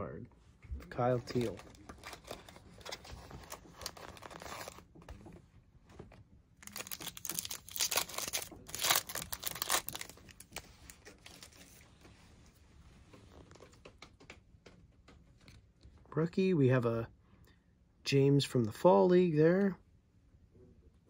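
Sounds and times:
foil wrapper tearing and crinkling: 6.6s - 11.5s.

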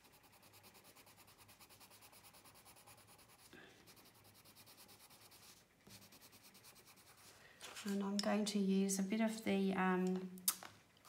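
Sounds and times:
pencil scratching on paper: 0.0s - 7.3s.

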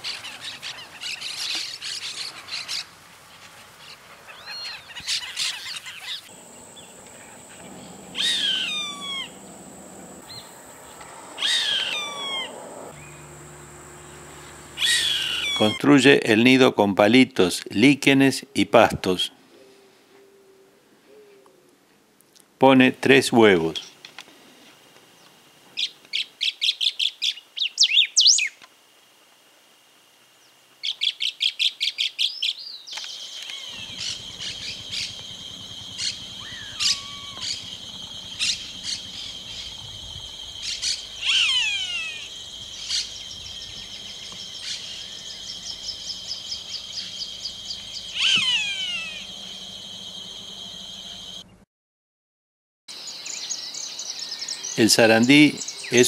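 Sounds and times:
hawk calling: 4.3s - 9.5s, 10.2s - 13.2s, 14.7s - 15.8s, 33.4s - 51.4s
steady high buzz: 5.9s - 18.2s, 33.2s - 51.6s.

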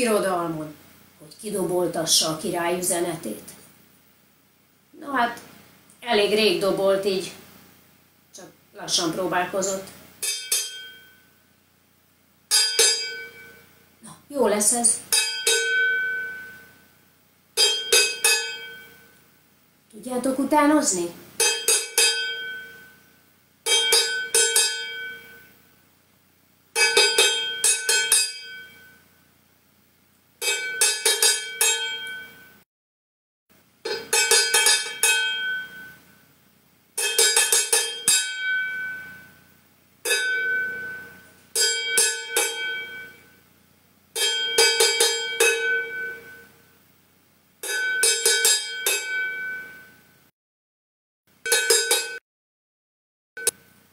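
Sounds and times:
wooden beaters striking metal pot: 10.2s - 11.1s, 12.5s - 13.6s, 15.1s - 16.6s, 17.6s - 19.0s, 21.4s - 22.9s, 23.7s - 25.5s, 26.8s - 28.9s, 30.4s - 32.4s, 33.8s - 36.0s, 37.0s - 39.3s, 40.0s - 43.3s, 44.2s - 46.5s, 47.6s - 49.8s, 51.4s - 52.2s.

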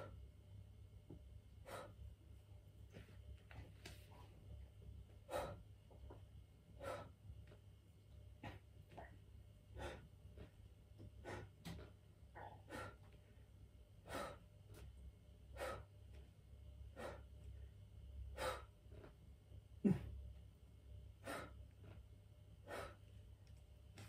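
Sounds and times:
low steady hum: 0.0s - 24.0s
man breathing hard: 6.8s - 7.2s, 14.0s - 14.5s, 15.5s - 15.9s.

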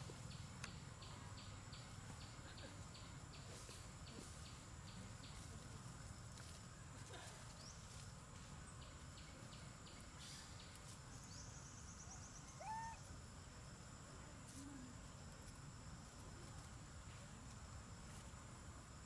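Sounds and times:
insects droning: 0.0s - 19.0s
insect ticking trill: 0.1s - 6.8s
rising animal call: 12.6s - 13.0s.

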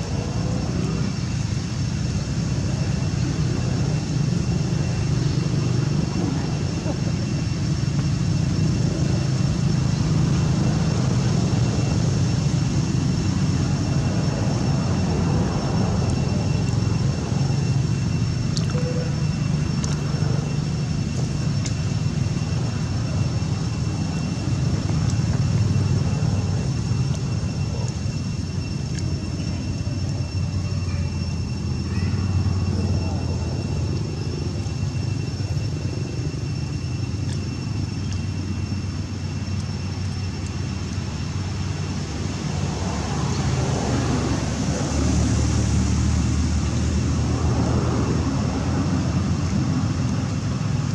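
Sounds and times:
low outdoor rumble: 0.0s - 50.9s
faint high-pitched tone: 13.3s - 46.4s.

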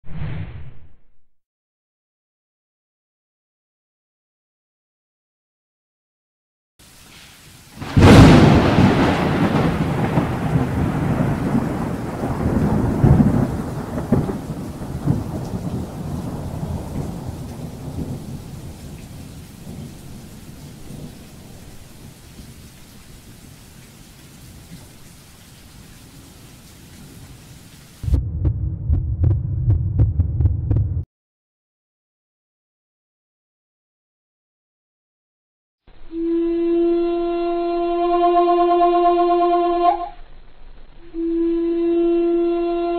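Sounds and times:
thunder crack and rumble: 7.8s - 22.2s, 28.0s - 31.1s
low throbbing beat: 28.0s - 31.0s.

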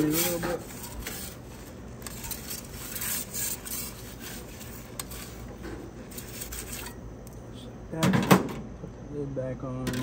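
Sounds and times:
metal peel scraping stone: 0.0s - 7.0s.

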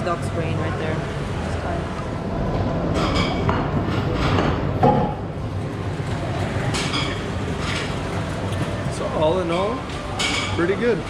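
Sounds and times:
tableware clinking: 2.9s - 5.2s, 6.7s - 8.0s, 9.4s - 10.8s.

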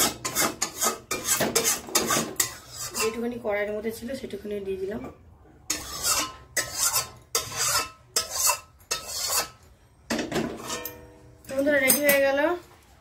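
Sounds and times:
spatula scraping a wok: 0.0s - 3.4s, 5.7s - 11.6s.

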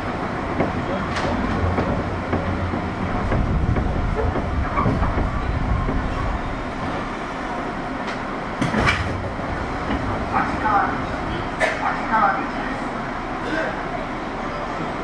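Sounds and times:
train running rumble: 0.0s - 15.0s
wheels clicking over rail joints: 0.5s - 6.4s.

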